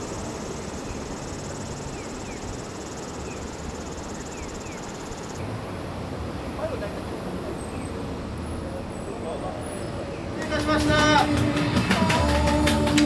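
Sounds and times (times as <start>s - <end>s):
high fast-pulsing insect trill: 0.0s - 5.4s.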